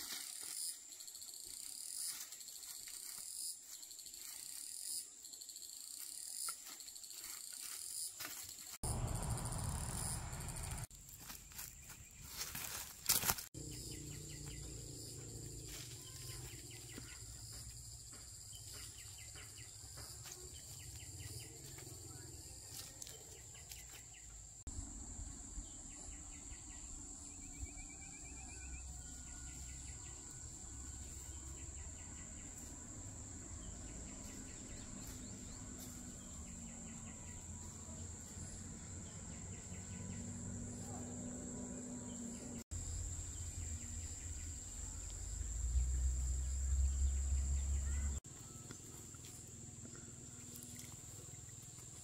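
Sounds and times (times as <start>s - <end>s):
insects droning: 0.0s - 52.0s.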